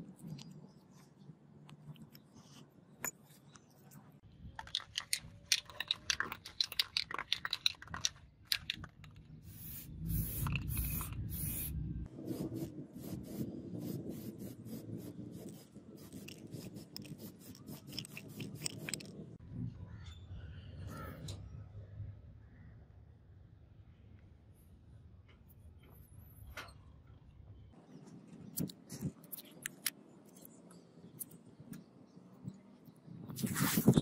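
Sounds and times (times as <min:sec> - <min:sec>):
aerosol spray can hissing: 0:09.5 - 0:11.7.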